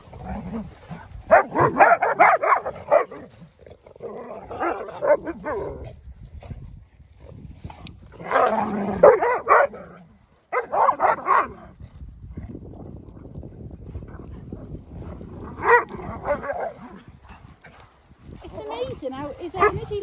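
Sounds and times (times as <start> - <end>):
dogs barking and yipping: 0.0 - 3.6, 4.4 - 5.9, 8.2 - 11.8, 15.0 - 17.9, 19.4 - 20.0.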